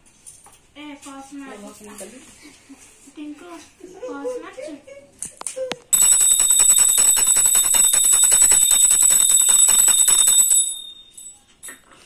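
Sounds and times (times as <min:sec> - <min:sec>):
hand bell ringing rapidly: 0:06.0 - 0:11.3.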